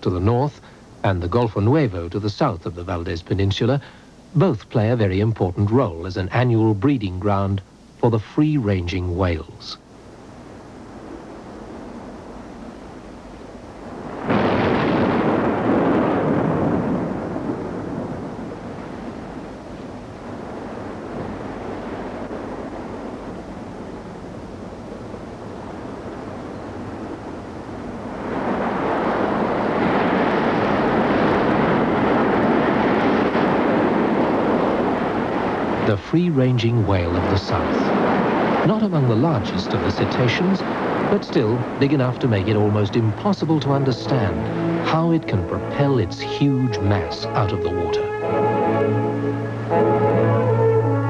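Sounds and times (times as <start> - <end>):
loud rushing noise: 43.4 - 51.0.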